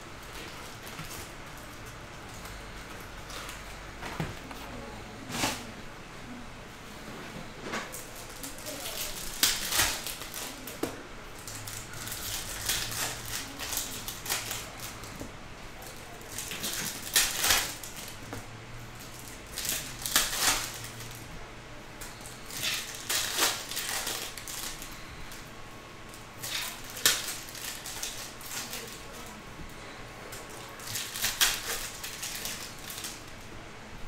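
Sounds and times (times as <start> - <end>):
cards rustling: 7.9 - 15.2, 15.8 - 18.3, 19.0 - 21.2, 22.1 - 25.5, 26.1 - 33.2
foil wrappers crinkling and tearing: 7.9 - 18.3, 19.0 - 21.3, 22.0 - 33.4.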